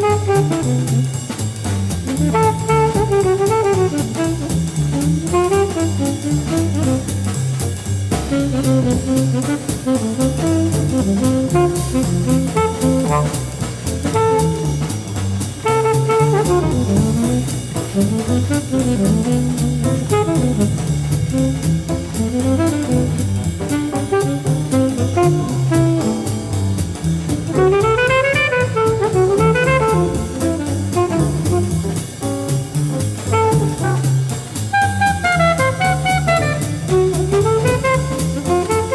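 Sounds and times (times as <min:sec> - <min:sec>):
alto saxophone melody: 0:00.0 - 0:01.4, 0:02.1 - 0:38.9
double bass: 0:00.0 - 0:38.9
drum kit: 0:00.0 - 0:38.9.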